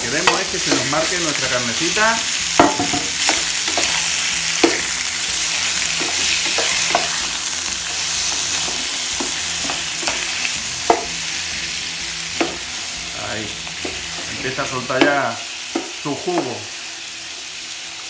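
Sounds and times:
meat sizzling in hot oil: 0.0 - 18.0
wooden spoon knocking on pan: 0.2 - 1.1, 2.5 - 7.2, 7.8 - 11.2, 12.4 - 12.8, 13.7 - 16.6.

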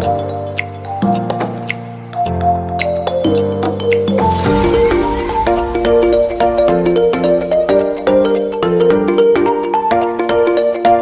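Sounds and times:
light percussive clicks: 0.0 - 6.6
cymbal-like swell: 4.2 - 9.2.

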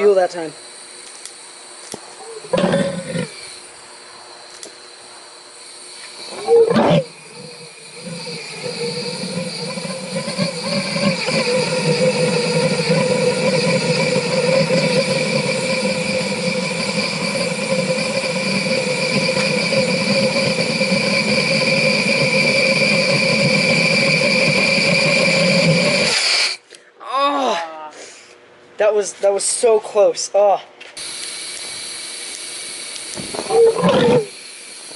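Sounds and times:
droning hiss with hum: 0.0 - 34.9
pulsejet ignition whoomp: 6.2 - 26.6.

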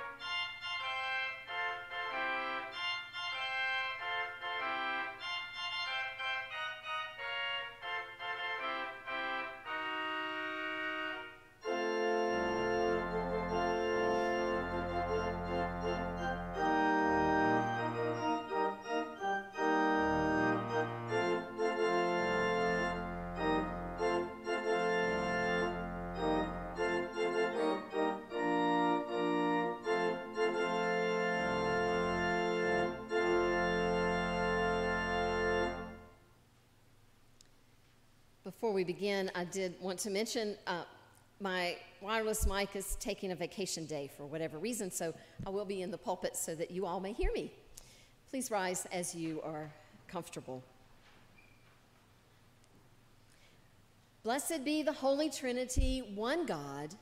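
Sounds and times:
church organ chords: 0.0 - 36.3.

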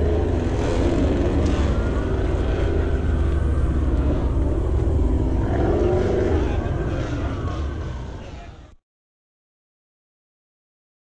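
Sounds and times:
low engine drone: 0.0 - 8.8.

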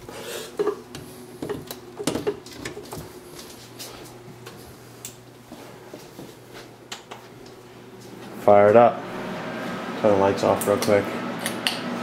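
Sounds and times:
clicks and knocks handling computer case: 0.6 - 3.2.

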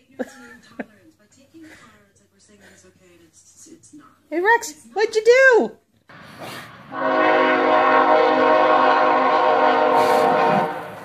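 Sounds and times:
loud horn blast: 6.9 - 11.0.

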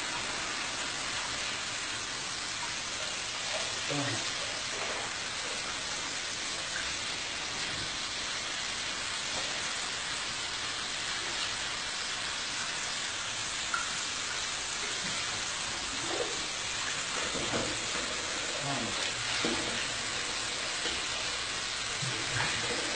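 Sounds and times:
tap water splashing into bowl: 17.1 - 18.3, 18.9 - 19.9.

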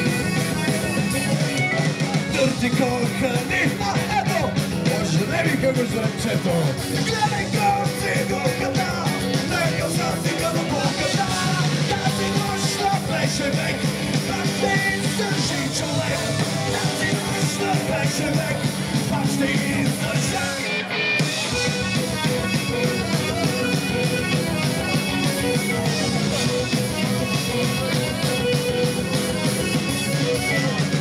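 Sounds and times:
singer shouting vocals: 0.0 - 21.2
punk rock band playing: 0.0 - 31.0.

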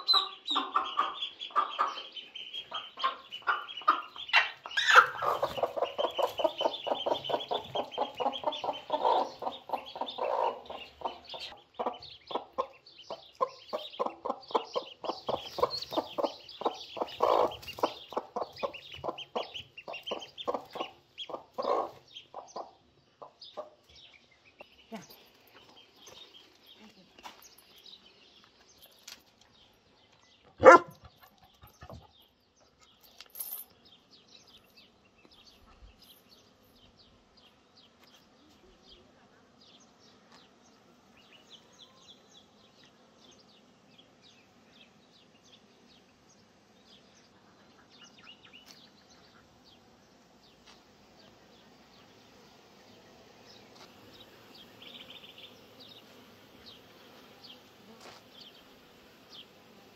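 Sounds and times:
high bird chirps: 0.0 - 22.0
honeybees buzzing: 0.0 - 29.6, 33.8 - 59.9
dog barking: 30.6 - 31.0.

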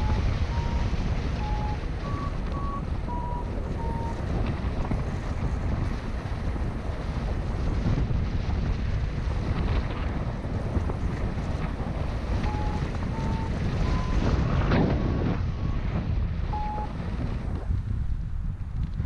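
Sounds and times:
variometer short beeps: 0.0 - 4.2, 12.4 - 14.3, 16.5 - 16.9
wind rushing over microphone: 0.0 - 19.0.

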